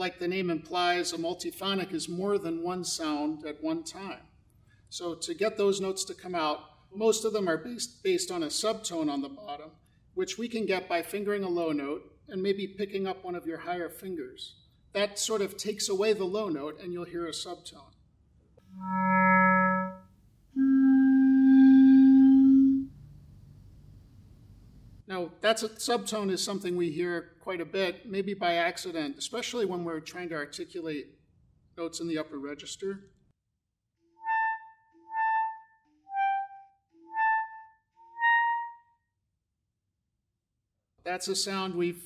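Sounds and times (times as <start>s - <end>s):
clarinet held notes: 18.6s - 23.1s, 34.2s - 38.9s.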